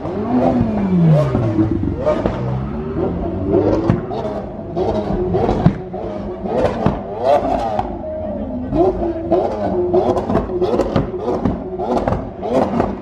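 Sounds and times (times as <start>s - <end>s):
car driving past: 0.0s - 7.9s
supercar engines revving: 0.0s - 13.0s.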